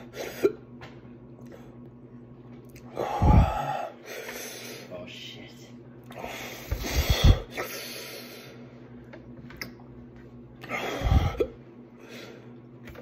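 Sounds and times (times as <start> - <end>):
man gasping heavily: 3.0 - 4.6.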